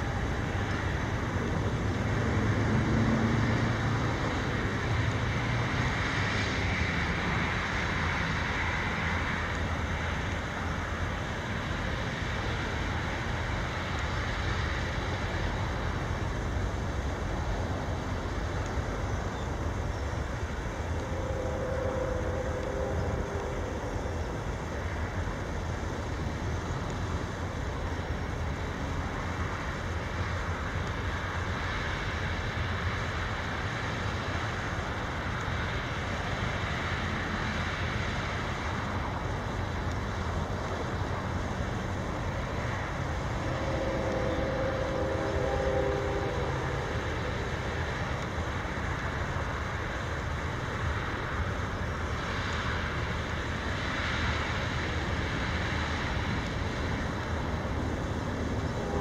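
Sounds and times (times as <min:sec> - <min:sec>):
freight train rumble: 0:00.0 - 0:59.0
outdoor noise: 0:00.0 - 0:59.0
train horn tone: 0:20.9 - 0:24.3, 0:42.6 - 0:48.6, 0:58.5 - 0:59.0.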